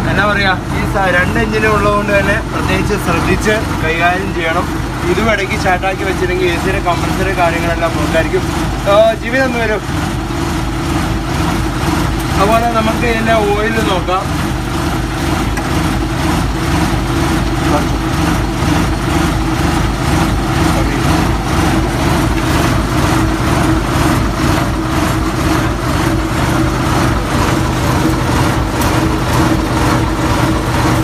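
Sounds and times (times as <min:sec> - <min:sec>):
diesel bus engine idling: 0:00.0 - 0:31.0.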